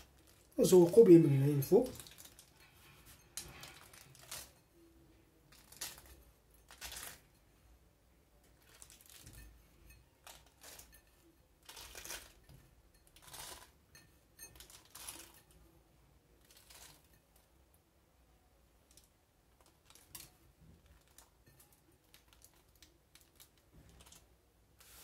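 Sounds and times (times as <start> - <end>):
nuts rustling and clicking: 1.8 - 2.6, 8.5 - 9.6, 18.8 - 24.3.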